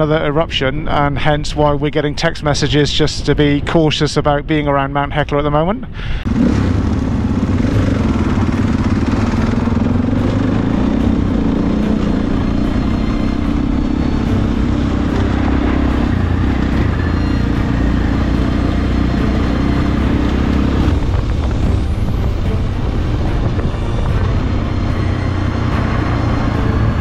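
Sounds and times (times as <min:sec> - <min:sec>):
dirt bike engine running: 0:06.3 - 0:27.0.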